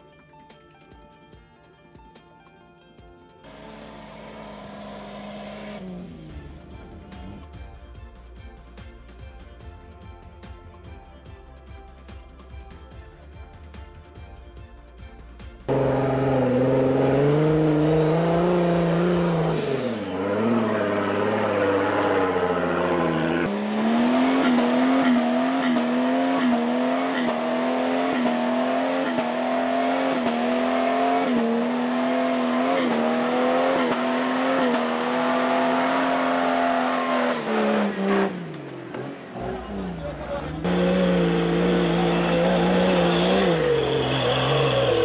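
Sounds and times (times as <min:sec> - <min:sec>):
vehicle engine revving: 0:03.5 - 0:07.7, 0:15.7 - 0:45.0.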